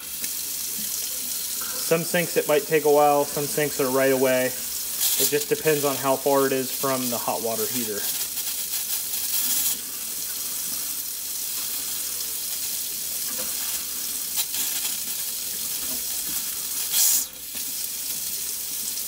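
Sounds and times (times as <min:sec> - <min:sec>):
faucet running into sink: 0:00.0 - 0:19.0.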